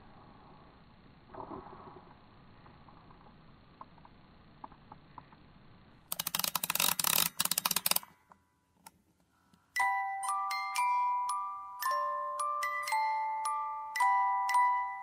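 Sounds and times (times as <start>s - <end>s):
rapid clicking: 6.1s - 8.1s
music box chime melody: 9.8s - 15.0s.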